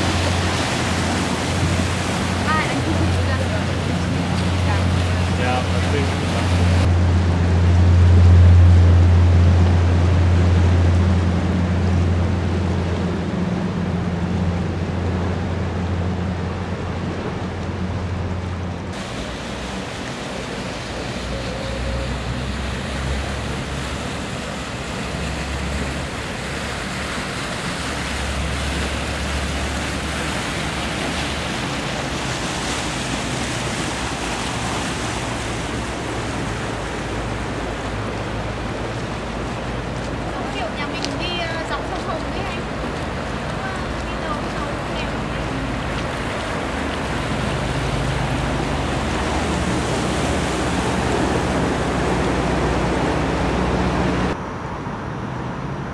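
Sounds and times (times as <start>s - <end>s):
low rumble: 0.0s - 19.8s
boat engine drone: 0.0s - 55.9s.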